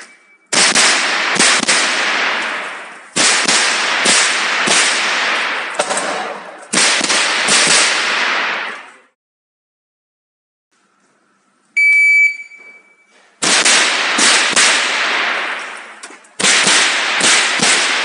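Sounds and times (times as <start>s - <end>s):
rifle shots echoing: 0.0s - 9.0s, 13.4s - 18.0s.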